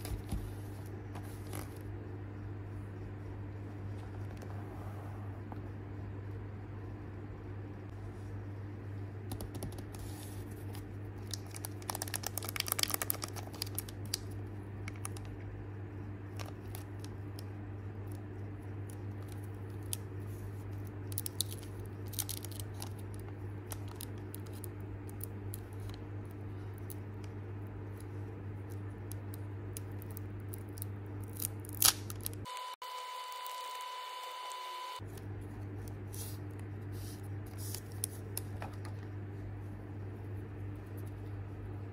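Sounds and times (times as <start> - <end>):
steady low hum: 0.0 - 41.9
foil wrapper crinkling: 11.2 - 15.3, 18.9 - 25.9.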